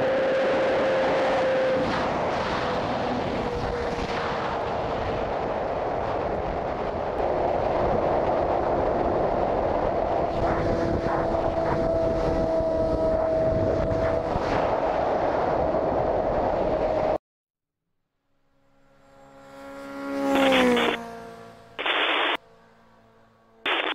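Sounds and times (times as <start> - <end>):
wind rushing over microphone: 0.0 - 17.2
motorcycle engine cruising: 18.5 - 21.8.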